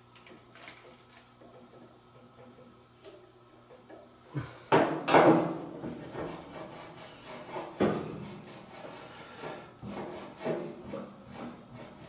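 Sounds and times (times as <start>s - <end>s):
scraping rub on metal: 5.9s - 12.0s.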